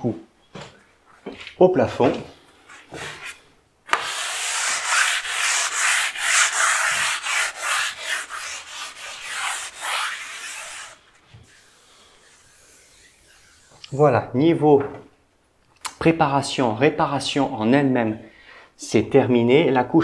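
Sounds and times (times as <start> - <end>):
hand sanding strokes: 2.8 - 14.0.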